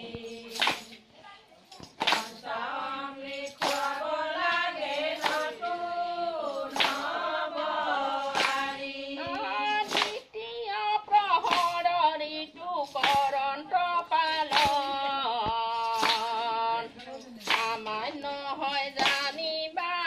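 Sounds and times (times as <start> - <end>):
women singing devotional song: 0.0 - 20.0
hands clapping in time: 0.1 - 1.0, 1.8 - 2.5, 3.2 - 5.8, 6.4 - 10.3, 11.4 - 11.9, 12.9 - 13.4, 14.4 - 18.0, 18.9 - 19.4.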